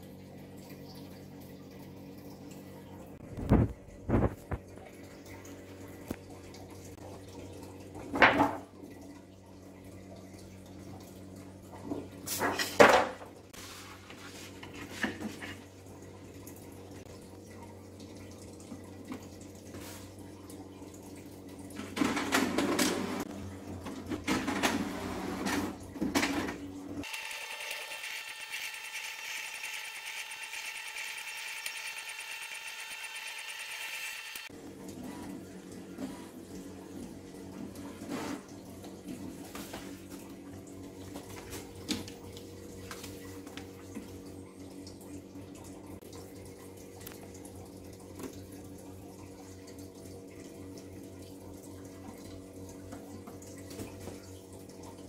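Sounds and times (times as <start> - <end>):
high-pitched scanner whir: 27.1 - 34.5.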